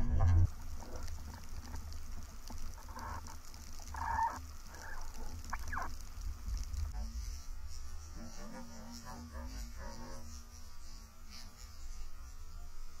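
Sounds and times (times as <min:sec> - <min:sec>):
light crackling: 0:00.0 - 0:07.4
underwater low rumble: 0:00.0 - 0:07.8
faint wavering hum: 0:00.0 - 0:13.0.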